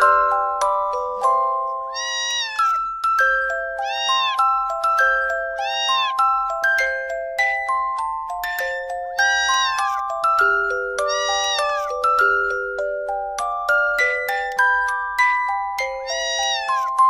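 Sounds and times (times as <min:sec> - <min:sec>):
music of ringing notes: 0:00.0 - 0:17.0
kitten meowing: 0:01.9 - 0:03.0, 0:03.8 - 0:04.6, 0:05.5 - 0:06.2, 0:08.4 - 0:10.0, 0:11.0 - 0:12.0, 0:16.0 - 0:17.0.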